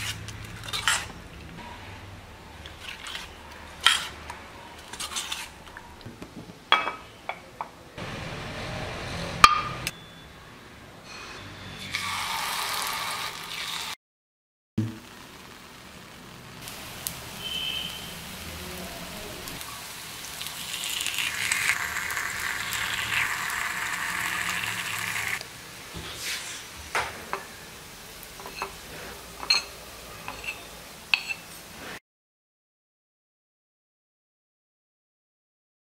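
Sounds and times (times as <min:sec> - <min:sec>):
batter sizzling: 0:11.8 - 0:14.0, 0:14.8 - 0:32.0
metal spoon clinking on pan: 0:29.4 - 0:31.5.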